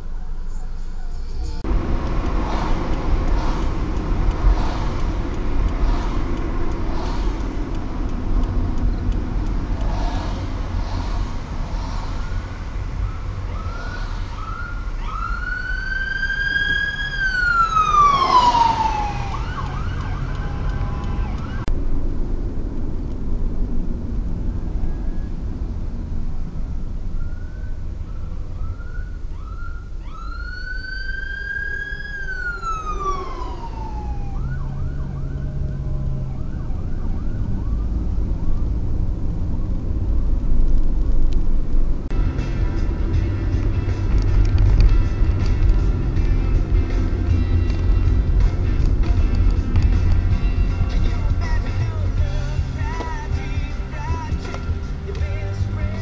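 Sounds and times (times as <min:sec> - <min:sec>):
road rumble: 0:00.0 - 0:56.0
ambulance siren: 0:12.9 - 0:21.7, 0:27.1 - 0:39.8.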